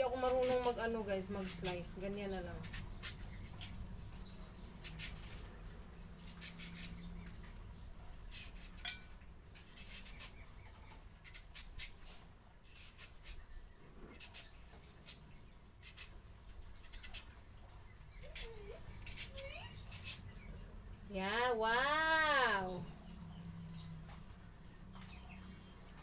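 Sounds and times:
knife slicing mango: 0.0 - 7.4, 8.1 - 10.4, 11.2 - 13.4, 14.1 - 16.2, 18.2 - 20.4.

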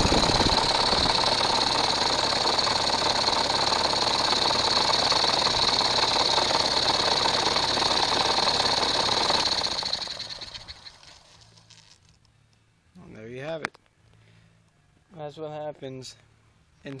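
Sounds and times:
engine running with high whine: 0.0 - 12.1.

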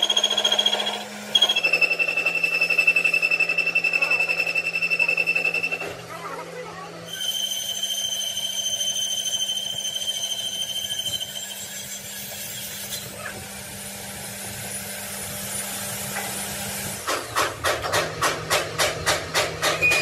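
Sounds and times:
power tool high whine: 0.0 - 6.0, 7.1 - 17.0.

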